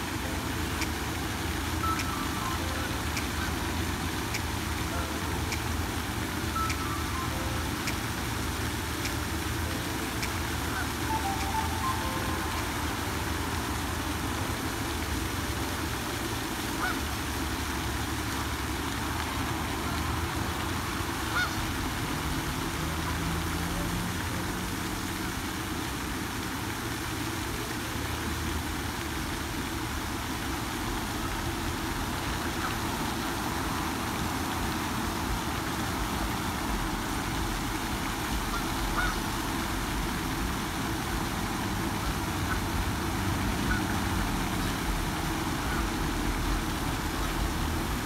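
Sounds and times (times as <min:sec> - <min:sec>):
fountain spray splashing: 0:00.0 - 0:48.0
waterfowl honks: 0:10.3 - 0:13.1, 0:16.7 - 0:17.1, 0:21.2 - 0:21.7, 0:32.2 - 0:33.2, 0:38.2 - 0:39.7, 0:42.0 - 0:42.7, 0:43.6 - 0:46.2.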